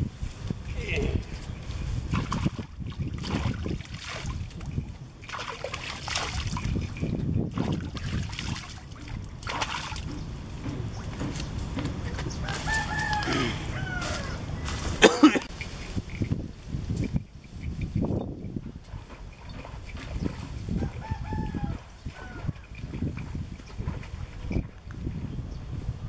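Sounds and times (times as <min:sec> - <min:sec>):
water splashing and trickling: 0:00.0 - 0:25.1
rooster crowing: 0:12.4 - 0:14.6, 0:20.8 - 0:22.6.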